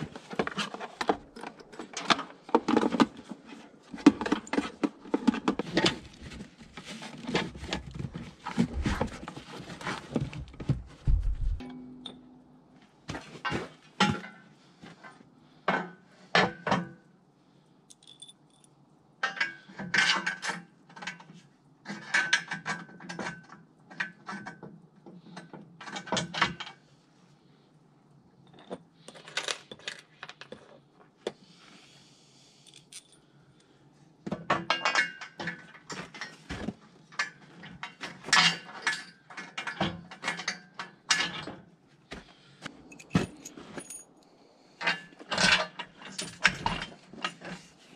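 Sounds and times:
loose bolts and washers clinking: 17.9s - 18.7s, 42.8s - 44.2s
metal clinks and clatters: 17.9s - 18.8s, 32.7s - 33.2s, 42.8s - 44.2s.

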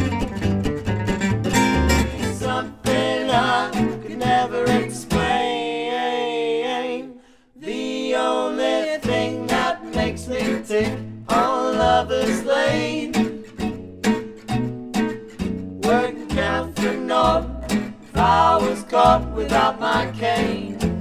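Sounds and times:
plucked double bass: 0.0s - 5.5s, 9.0s - 21.0s
acoustic guitars strumming: 0.0s - 5.8s, 8.7s - 21.0s
person singing: 1.9s - 13.5s, 15.8s - 21.0s.

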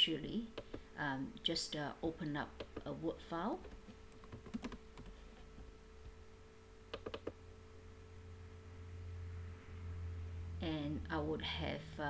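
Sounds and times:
faint room hum: 0.0s - 12.0s
keyboard key clicks: 6.9s - 7.3s.

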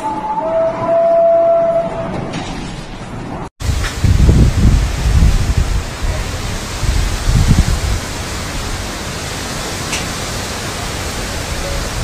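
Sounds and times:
wind buffeting microphone: 3.6s - 9.2s
strong wind rushing hiss: 3.6s - 12.0s.

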